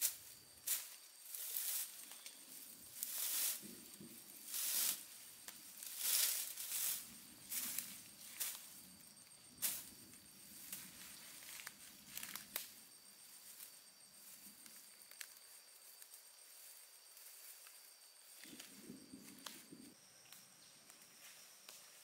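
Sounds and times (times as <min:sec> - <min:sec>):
rustling and crinkling: 0:00.0 - 0:09.0, 0:09.6 - 0:12.7.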